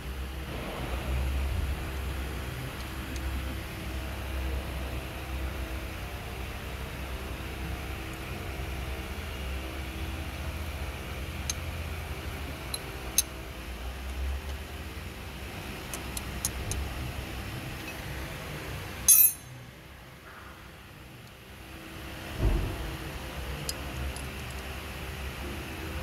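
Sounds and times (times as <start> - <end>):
steady low hum: 0.0 - 26.0
hand tool clicking on metal: 19.1 - 19.5
sharp metallic clack: 19.1 - 19.5.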